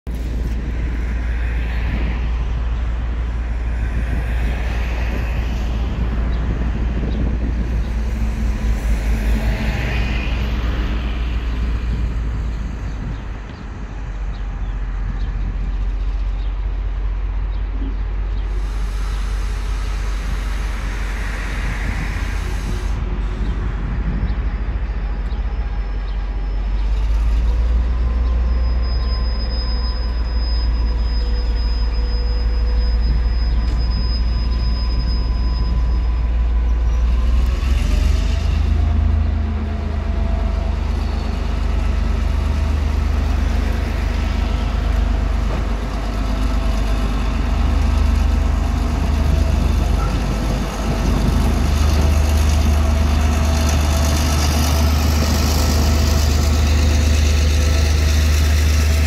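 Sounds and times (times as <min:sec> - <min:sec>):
diesel locomotive running: 0:00.1 - 0:59.0
industrial noise: 0:00.1 - 0:59.0
low traffic noise: 0:00.1 - 0:59.0
wheels squealing on track: 0:25.8 - 0:59.0.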